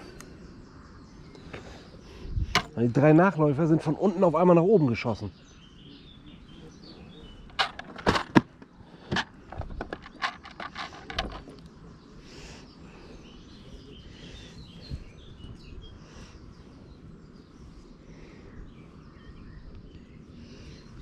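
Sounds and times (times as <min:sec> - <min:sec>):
birds chirping: 0:00.0 - 0:21.0
hands handling gear clicking: 0:07.5 - 0:11.7.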